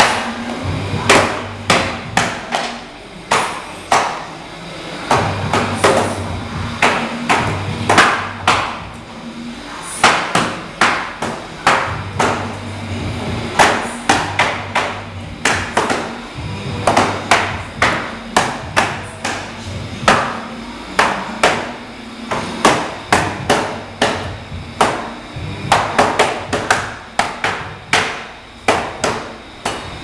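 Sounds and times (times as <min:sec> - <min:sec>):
low machine hum: 0:00.0 - 0:30.0
hammers striking wood and metal: 0:01.0 - 0:04.3, 0:06.8 - 0:08.9, 0:10.0 - 0:12.6, 0:13.5 - 0:20.4, 0:21.0 - 0:30.0.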